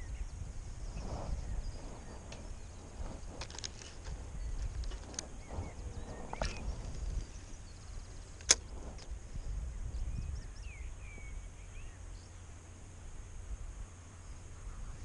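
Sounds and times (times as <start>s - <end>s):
wind on microphone: 0.0s - 15.0s
bird chirps: 4.2s - 8.8s, 9.7s - 12.5s
reel bail click: 8.4s - 9.1s.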